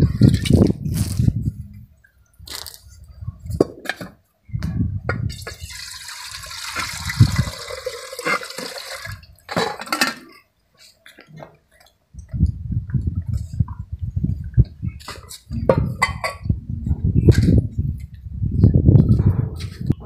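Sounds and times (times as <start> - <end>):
water pouring into metal pot: 5.4 - 9.3
metal pots knocking: 5.4 - 10.4.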